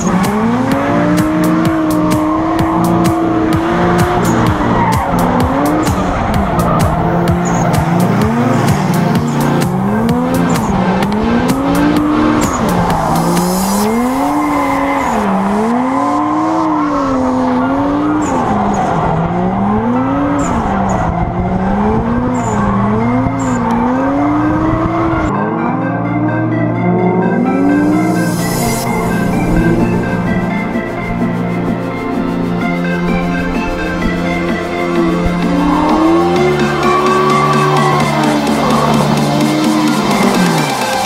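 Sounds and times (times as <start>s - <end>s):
car engine revving: 0.0s - 41.0s
tyres squealing: 33.4s - 41.0s.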